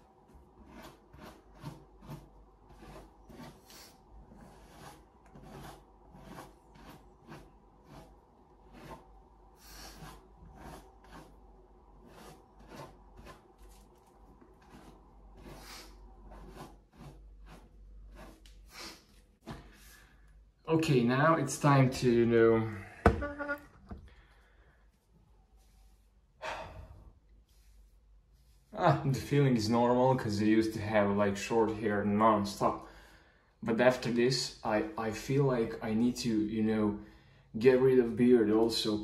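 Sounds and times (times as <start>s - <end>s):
rubbing and scratching strokes: 0.0s - 20.2s, 24.9s - 26.4s, 27.2s - 28.8s.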